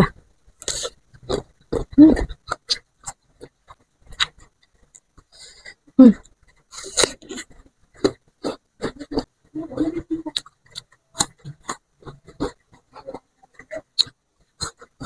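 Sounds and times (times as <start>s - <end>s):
chewing and crunching fruit: 0.0s - 15.0s.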